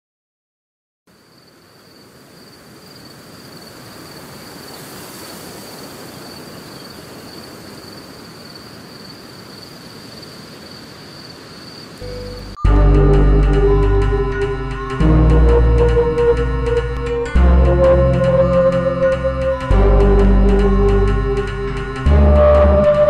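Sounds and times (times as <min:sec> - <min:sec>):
rushing hiss: 0:02.1 - 0:08.9
high-pitched insect drone: 0:11.6 - 0:23.0.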